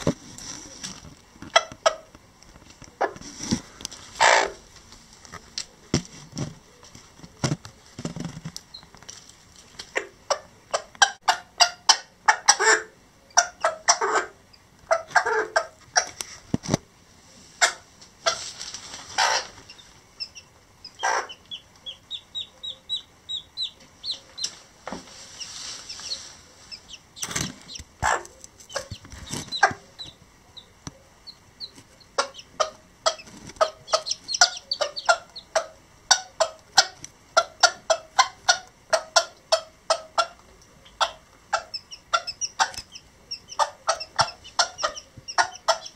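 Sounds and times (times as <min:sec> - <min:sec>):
hen clucking: 0:00.0 - 0:02.2, 0:02.9 - 0:04.6, 0:09.8 - 0:16.4, 0:17.6 - 0:45.9
chicks peeping: 0:00.0 - 0:04.7, 0:06.2 - 0:16.7, 0:17.6 - 0:45.9.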